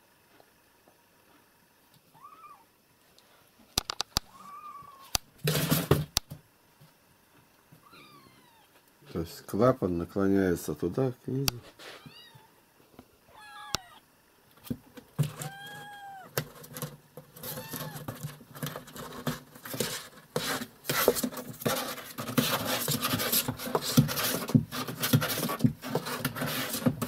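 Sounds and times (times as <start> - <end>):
cat meowing: 2.1 - 2.7, 4.3 - 5.2, 7.8 - 8.8, 12.0 - 12.6, 13.3 - 14.0, 15.3 - 16.4, 17.4 - 18.1
rustling and scratching: 4.3 - 6.1, 11.5 - 12.4, 14.6 - 27.0.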